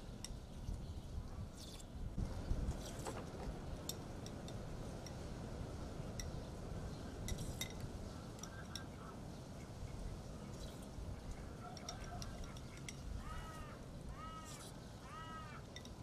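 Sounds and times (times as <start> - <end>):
spoons clinking against glass bowls: 11.6 - 13.1.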